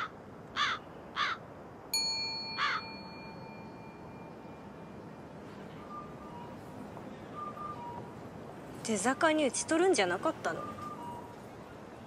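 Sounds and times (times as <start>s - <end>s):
crow cawing: 0.0s - 1.4s
small bell ringing: 2.0s - 4.8s.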